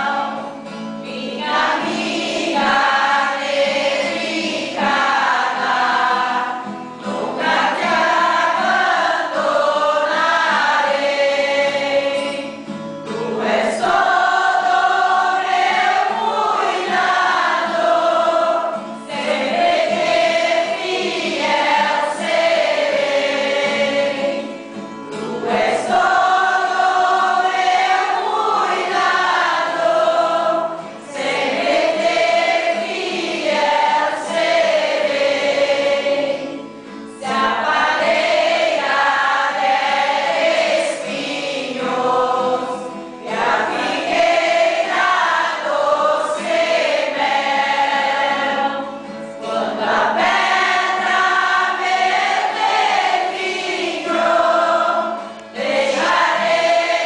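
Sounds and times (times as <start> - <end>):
group singing: 0.0 - 57.0.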